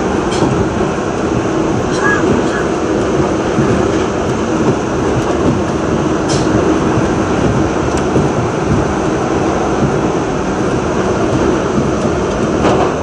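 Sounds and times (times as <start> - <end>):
subway train rumbling: 0.0 - 13.0.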